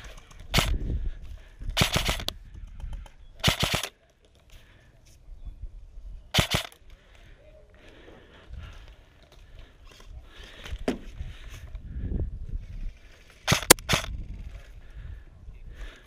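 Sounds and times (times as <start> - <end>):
airsoft rifle rapid shots: 0.5 - 0.8, 1.8 - 2.3, 3.4 - 3.9, 6.4 - 6.8, 13.4 - 14.2.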